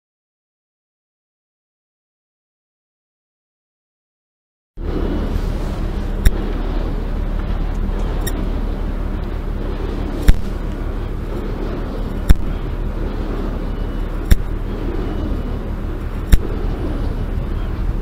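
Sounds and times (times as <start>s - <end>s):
radio receiver noise hiss: 4.8s - 18.0s
sharp click: 14.3s - 14.5s.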